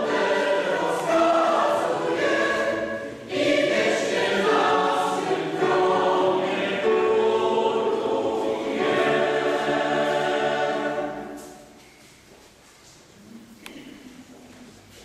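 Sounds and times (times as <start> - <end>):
choir singing: 0.0 - 11.8
piano accompaniment: 0.0 - 11.8.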